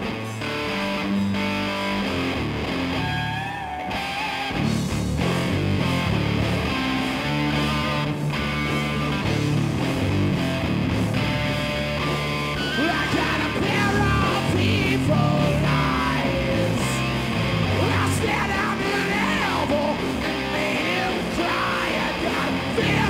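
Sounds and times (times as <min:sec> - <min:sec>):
electric guitar: 0:00.0 - 0:23.0
live rock band playing: 0:00.0 - 0:23.0
shouted vocals: 0:12.6 - 0:23.0.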